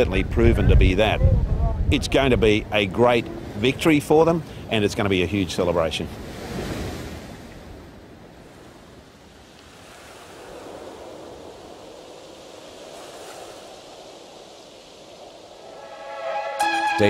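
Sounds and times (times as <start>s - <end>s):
wind over waves: 0.0s - 16.6s
water spray rushing over deck: 9.6s - 16.2s.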